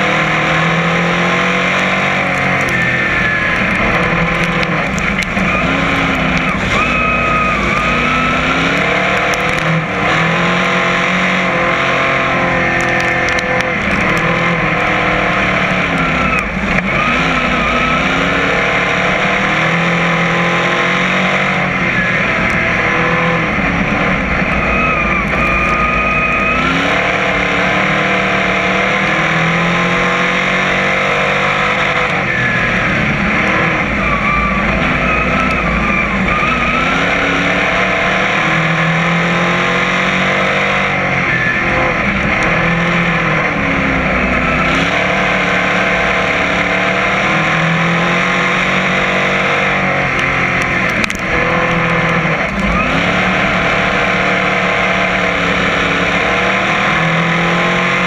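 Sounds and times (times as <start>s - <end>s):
race car engine running hard: 0.0s - 58.0s.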